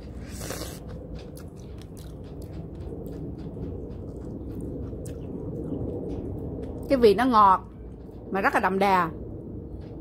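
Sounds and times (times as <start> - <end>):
biting into strawberry: 0.0 - 3.5
chewing with small clicks: 0.0 - 7.0.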